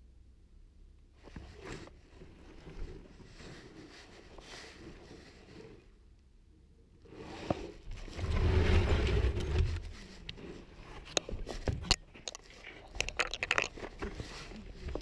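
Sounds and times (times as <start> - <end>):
clothing rubbing: 1.3 - 5.9
board being shifted: 7.2 - 15.0
camera jostling rumble: 7.7 - 15.0
debris scraping and knocking: 7.9 - 15.0.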